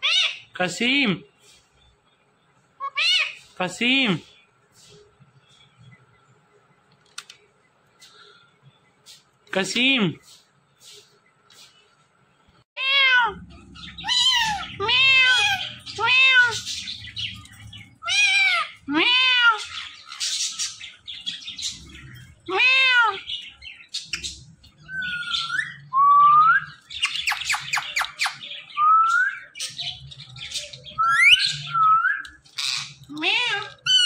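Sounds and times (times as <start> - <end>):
parrots calling: 0.0 - 0.8, 2.8 - 4.2, 12.8 - 34.0.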